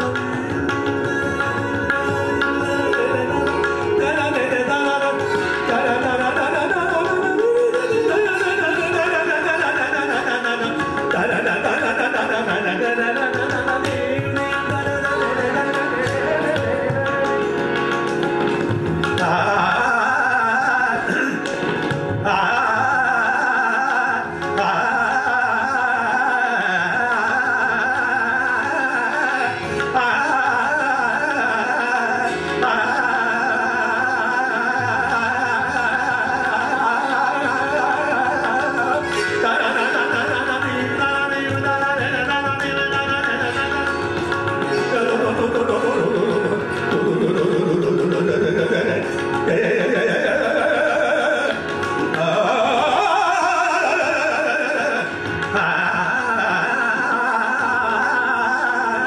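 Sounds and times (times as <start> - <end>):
instrumental accompaniment: 0.0 - 59.0
man singing classical vocals: 0.0 - 59.0.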